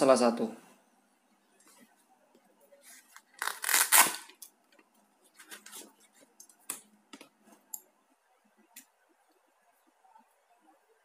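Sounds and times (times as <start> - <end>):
fabric pouch ripping rustle: 3.1 - 4.3.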